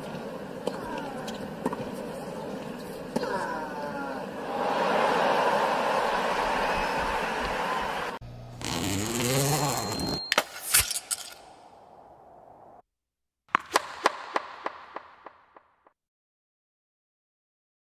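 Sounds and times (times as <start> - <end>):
stadium crowd noise: 3.7 - 8.2
sharp cracks: 13.5 - 15.9.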